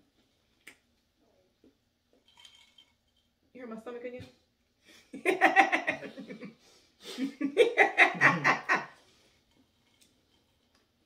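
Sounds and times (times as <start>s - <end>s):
woman laughing: 5.2s - 6.5s, 7.2s - 9.0s.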